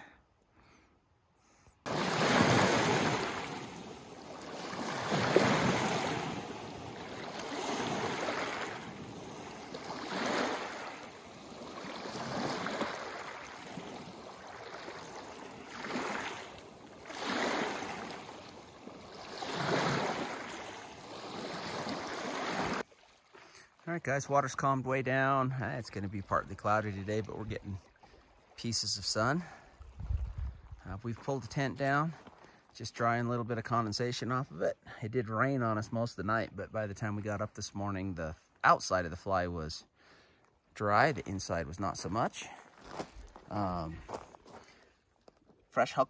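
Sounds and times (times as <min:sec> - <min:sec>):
lake waves washing in: 0:01.9 - 0:30.9
wind buffeting microphone: 0:29.8 - 0:30.8.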